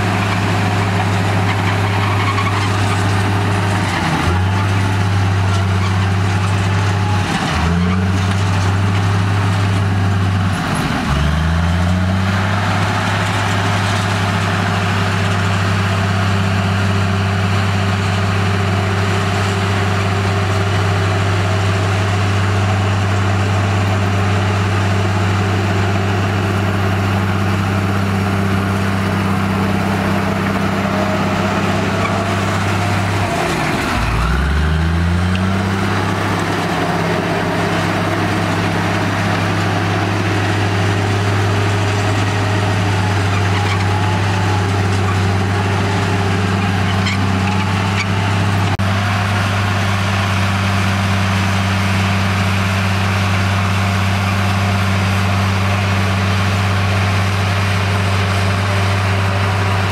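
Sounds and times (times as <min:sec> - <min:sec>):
bulldozer diesel engine running: 0:00.0 - 0:59.9.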